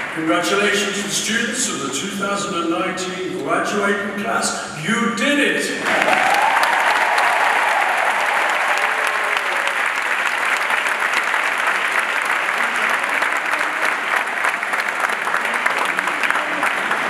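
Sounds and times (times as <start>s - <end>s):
large audience applauding: 5.8s - 17.0s.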